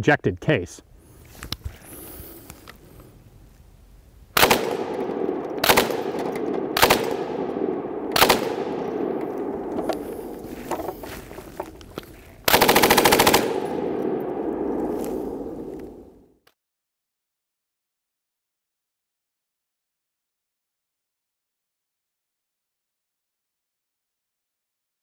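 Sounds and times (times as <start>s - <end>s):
machine gun firing bursts: 4.4s - 10.4s, 12.4s - 15.6s
gunfire echo: 4.4s - 10.6s, 12.5s - 16.2s.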